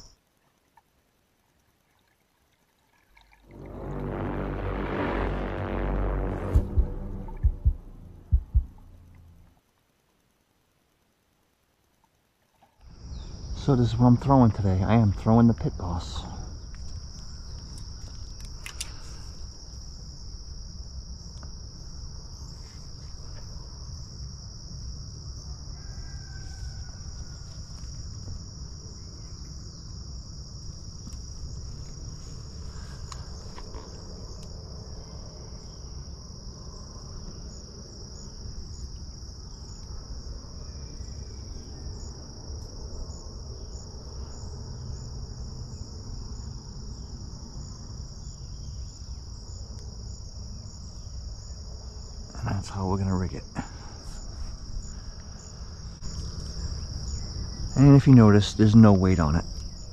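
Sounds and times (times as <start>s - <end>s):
low rumble: 3.4s - 9.6s
insects singing: 12.8s - 59.9s.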